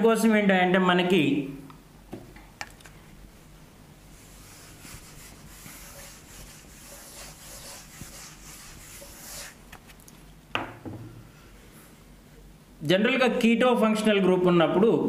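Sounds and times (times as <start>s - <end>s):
duster scrubbing whiteboard: 4.1s - 9.6s.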